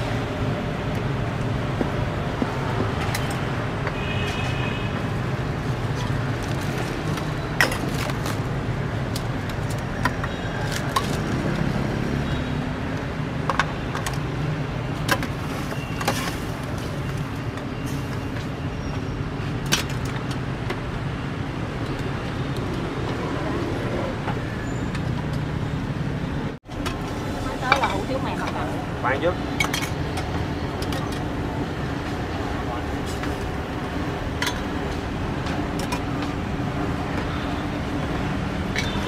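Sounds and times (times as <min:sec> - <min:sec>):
street traffic rumble: 0:00.0 - 0:39.0
metal utensils clinking on pots: 0:29.6 - 0:30.2.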